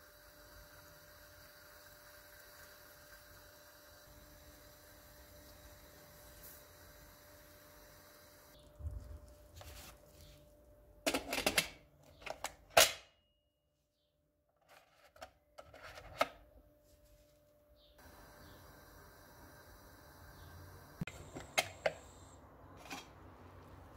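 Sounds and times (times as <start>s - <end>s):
kitchen clicks and clatters: 11.1s - 13.0s.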